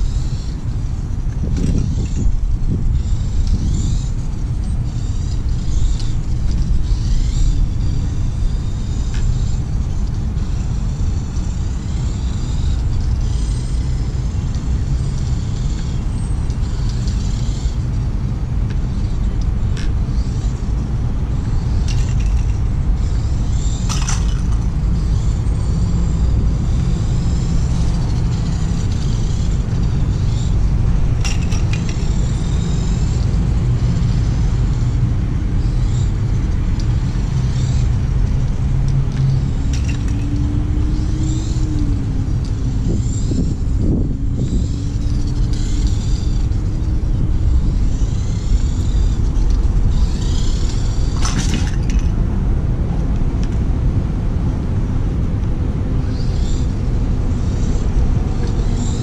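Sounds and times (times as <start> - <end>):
small electric motor whine: 0.0 - 59.0
wind on microphone: 0.0 - 59.0.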